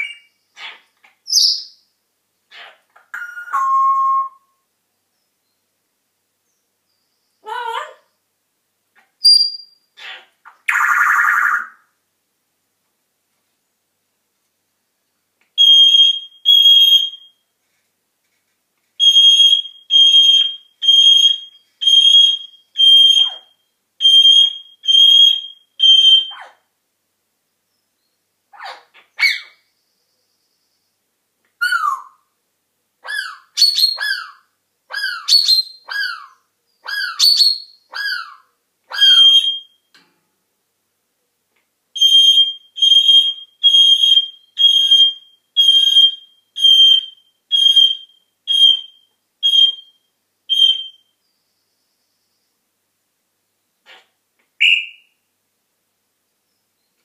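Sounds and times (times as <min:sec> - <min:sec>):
parrot falling whistles: 0:19.0 - 0:26.4, 0:39.0 - 0:39.8, 0:42.0 - 0:51.0, 0:54.6 - 0:55.1
parrot mimicking alarm beeps: 0:42.0 - 0:51.0.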